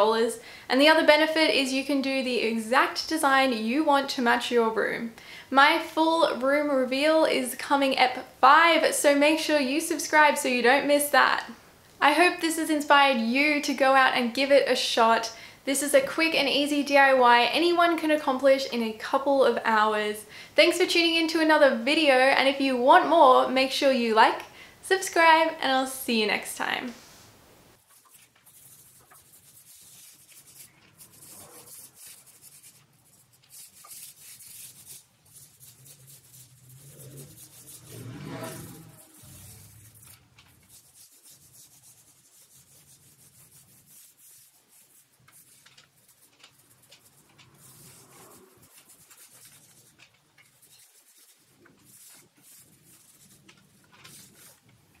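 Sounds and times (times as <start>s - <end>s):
paint roller on wood: 27.8s - 55.0s.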